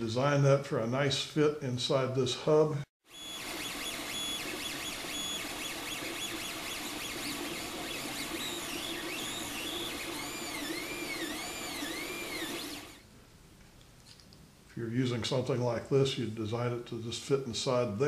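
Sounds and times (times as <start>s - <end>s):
stepper motors whining: 3.1s - 13.0s.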